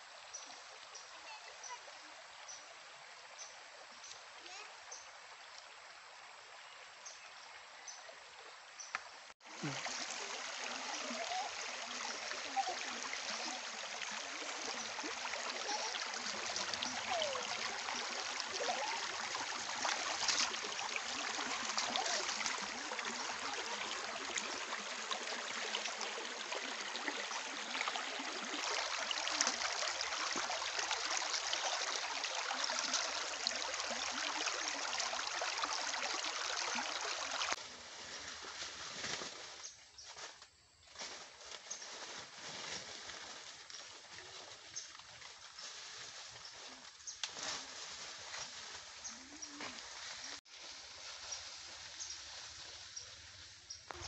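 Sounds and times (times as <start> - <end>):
stream running over stones: 0.0 - 40.3, 41.0 - 54.0
splashing water: 9.4 - 37.6.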